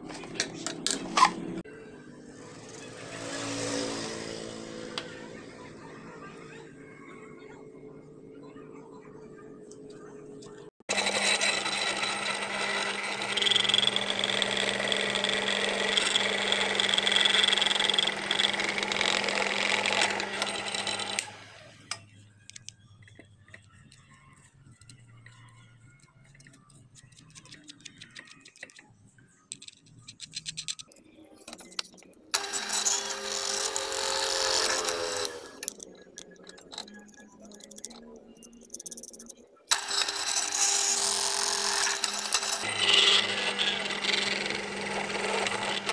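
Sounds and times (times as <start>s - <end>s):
drill press boring plastic: 10.9s - 22.0s, 32.4s - 35.8s, 39.7s - 45.9s.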